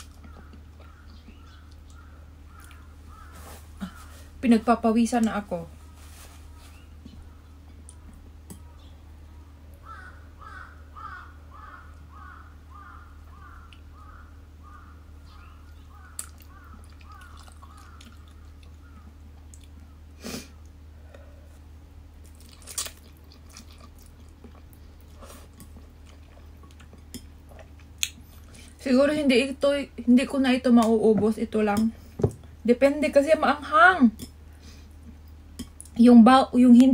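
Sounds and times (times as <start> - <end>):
bird calling: 0.2 - 4.3, 9.8 - 19.2
person chewing noodles: 16.1 - 19.9, 22.2 - 28.8.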